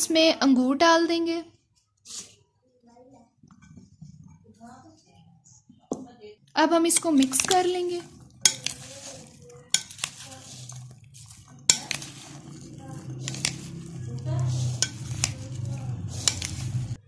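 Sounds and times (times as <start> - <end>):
spoon stirring fruit in bowl: 6.8 - 17.0
spoon clinking against bowl: 6.9 - 17.0.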